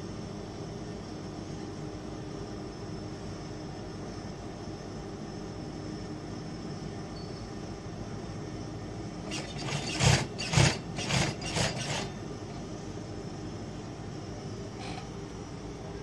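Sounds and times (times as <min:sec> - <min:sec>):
sewing machine humming: 0:09.2 - 0:12.2
sewing machine bursts: 0:09.3 - 0:12.2.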